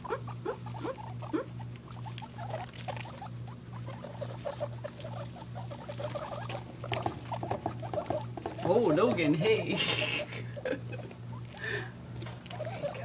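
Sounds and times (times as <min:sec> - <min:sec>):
guinea pigs squeaking: 0:00.0 - 0:13.0
scurrying on wood shavings: 0:04.1 - 0:10.5.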